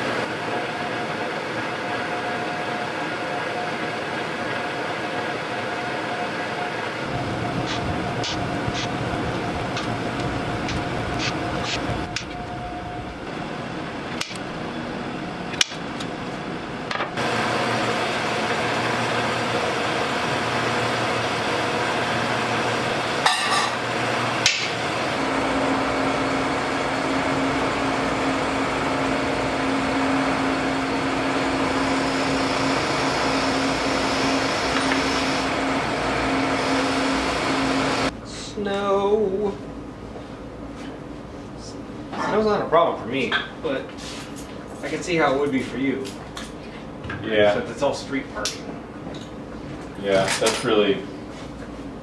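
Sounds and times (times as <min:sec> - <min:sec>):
buffing wheel whirring: 0:07.0 - 0:14.5, 0:23.8 - 0:38.2
drill press motor hum: 0:07.0 - 0:14.5, 0:23.8 - 0:38.1.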